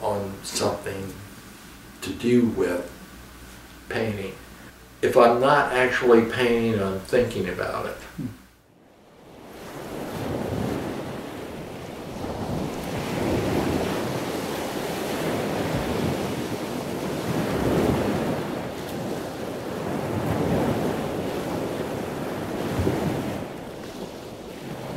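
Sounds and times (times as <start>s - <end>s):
waves washing: 8.9s - 24.9s.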